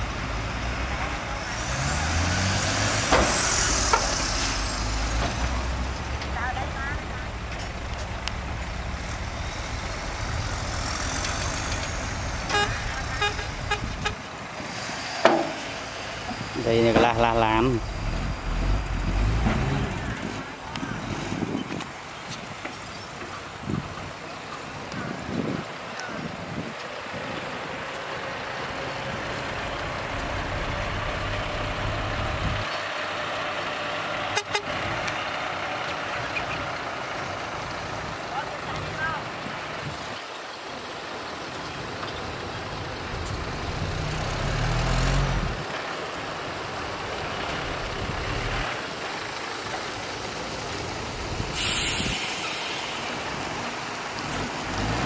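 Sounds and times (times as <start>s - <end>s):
diesel truck engine running: 0.0s - 55.0s
short horn-like beeps: 12.5s - 14.2s, 34.4s - 34.7s
short sharp horn toot: 12.5s - 14.2s, 34.4s - 34.7s.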